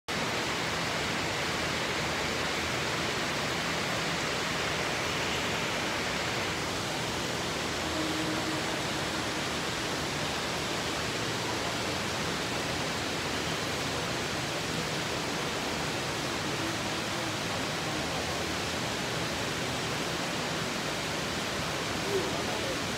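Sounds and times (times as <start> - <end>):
water falling into a pond: 0.1 - 22.9.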